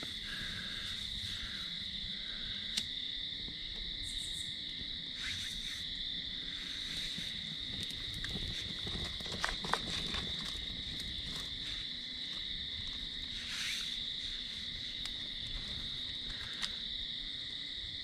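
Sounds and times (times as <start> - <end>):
night insects trilling: 0.0 - 18.0
pine needles crackling in fire: 6.4 - 16.8.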